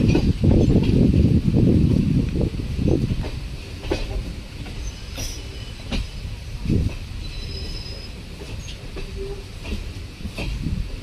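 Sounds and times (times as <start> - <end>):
train rumbling on track: 0.0 - 11.0
faint high squeals: 4.8 - 6.2, 7.2 - 9.4.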